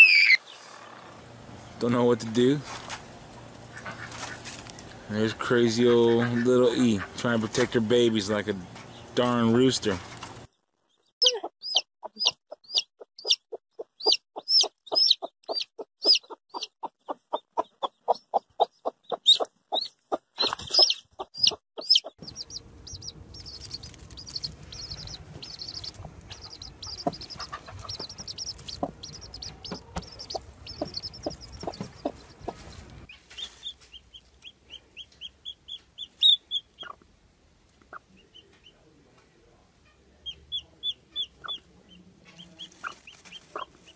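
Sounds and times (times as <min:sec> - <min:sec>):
hens clucking: 0:03.6 - 0:07.8, 0:11.2 - 0:38.8, 0:40.2 - 0:43.9
chicks peeping: 0:11.0 - 0:37.1, 0:37.8 - 0:38.9, 0:39.9 - 0:43.9.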